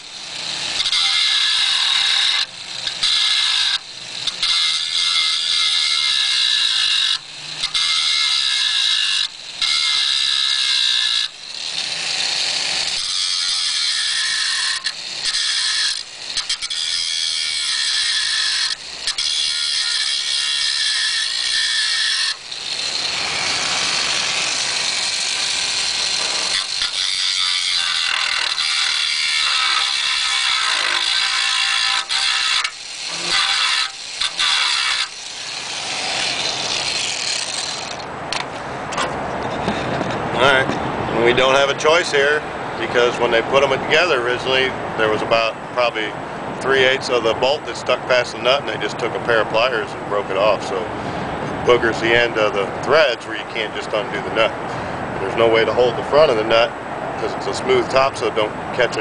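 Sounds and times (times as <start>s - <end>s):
grinder grinding steel: 0.0s - 42.2s, 51.6s - 54.5s.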